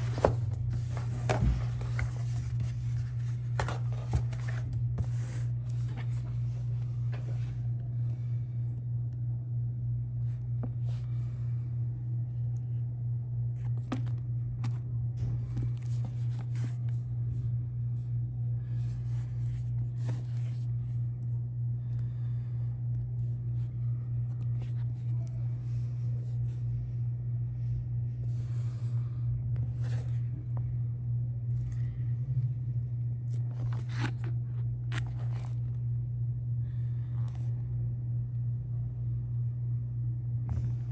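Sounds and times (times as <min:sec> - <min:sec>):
book being handled: 0:00.0 - 0:07.8, 0:13.5 - 0:17.5, 0:18.6 - 0:21.1, 0:23.3 - 0:26.9, 0:29.5 - 0:30.7, 0:33.2 - 0:35.9
steady low hum: 0:00.0 - 0:40.9.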